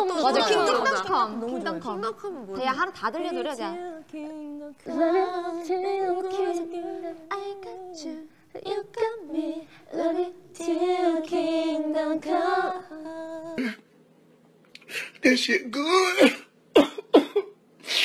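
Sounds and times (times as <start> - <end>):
women singing: 0.0 - 13.8.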